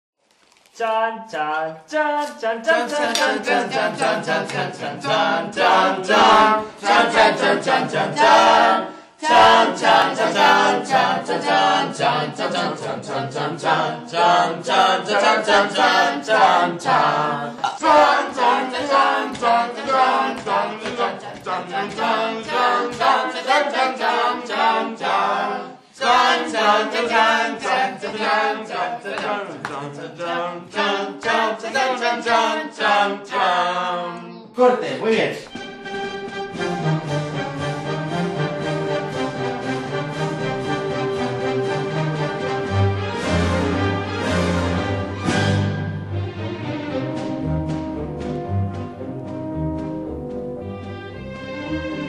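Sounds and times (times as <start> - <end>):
group singing a cappella: 0.8 - 34.5.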